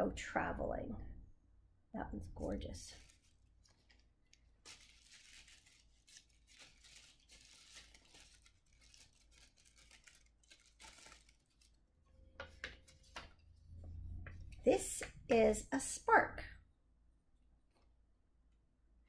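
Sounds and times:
paper wrapping rustling and tearing: 0:02.8 - 0:11.9, 0:12.7 - 0:13.4.

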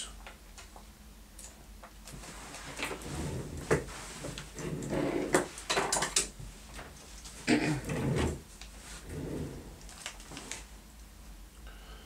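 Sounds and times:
rustling and clattering: 0:02.0 - 0:10.7.

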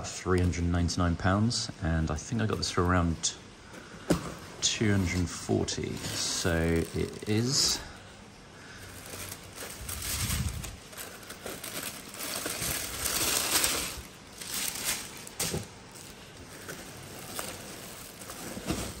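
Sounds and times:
plastic bag crinkling: 0:04.7 - 0:08.0, 0:08.6 - 0:19.0
tissue paper rustling: 0:04.8 - 0:07.9, 0:08.7 - 0:19.0.

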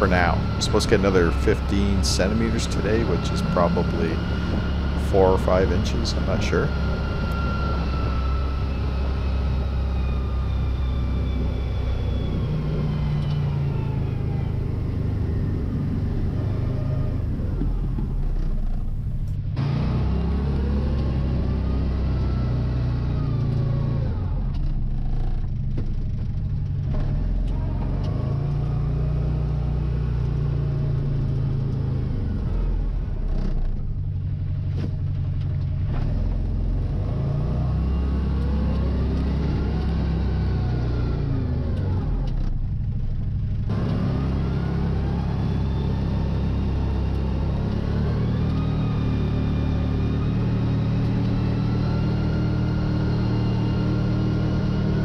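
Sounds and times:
engine revving under load: 0:00.0 - 0:55.0.

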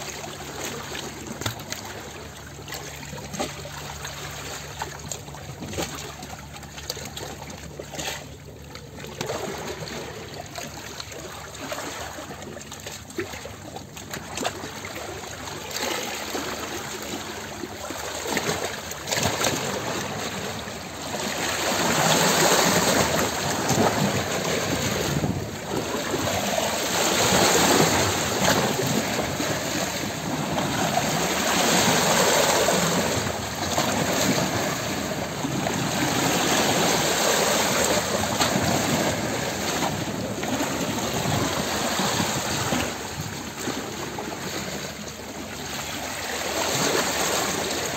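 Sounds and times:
rushing bubbling water: 0:00.0 - 0:47.9.

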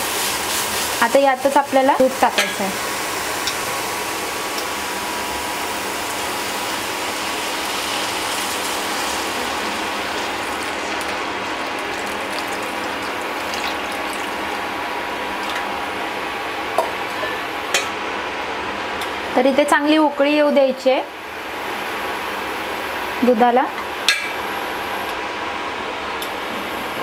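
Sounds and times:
crackling sizzle from pan: 0:00.0 - 0:17.9
milk pouring into pan: 0:08.0 - 0:14.8.

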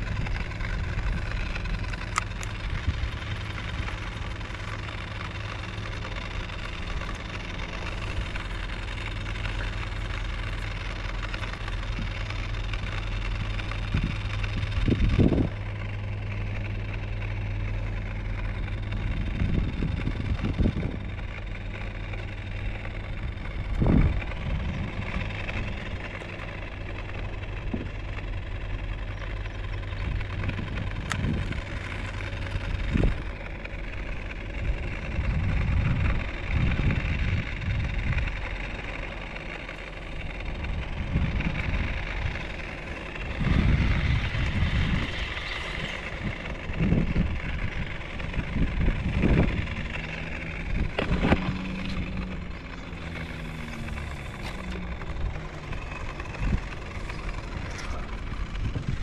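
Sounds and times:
low motor hum: 0:00.0 - 0:59.0
wind buffeting microphone: 0:13.2 - 0:16.4, 0:18.7 - 0:21.8, 0:22.4 - 0:26.2, 0:29.7 - 0:33.3, 0:34.6 - 0:38.4, 0:40.5 - 0:59.0.

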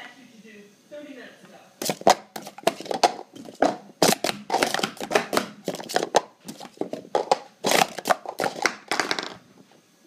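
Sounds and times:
plastic cups clattering: 0:01.8 - 0:09.4.

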